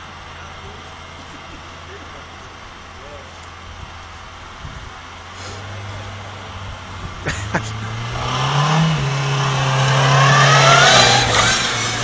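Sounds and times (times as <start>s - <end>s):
car engine accelerating past: 5.3s - 12.0s.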